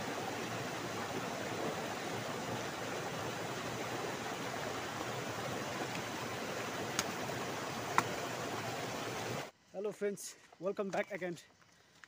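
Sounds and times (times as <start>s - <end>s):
stream water rushing: 0.0s - 9.5s.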